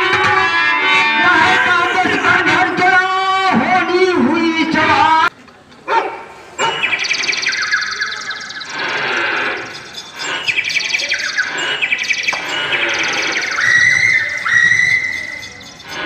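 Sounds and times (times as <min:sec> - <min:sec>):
bird-like chirping trills: 0:06.6 - 0:16.0
high held whistle tone: 0:06.6 - 0:16.0.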